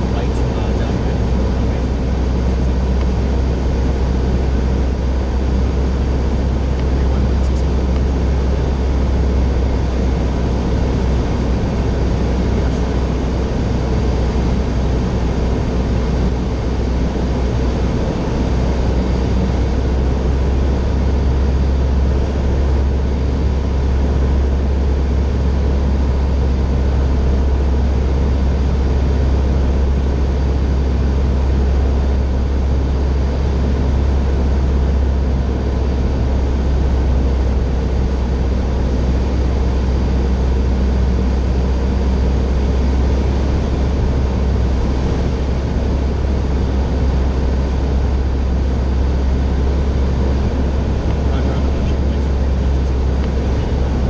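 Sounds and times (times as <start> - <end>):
propeller plane engine drone: 0.0 - 54.0
airflow noise: 42.8 - 54.0.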